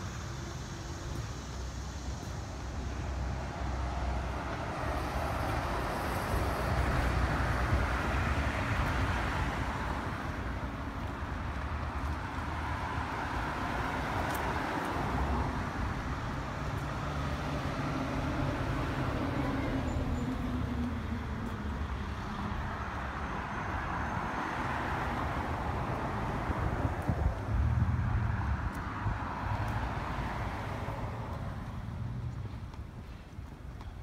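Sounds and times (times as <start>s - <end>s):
road traffic passing: 0.0s - 34.0s.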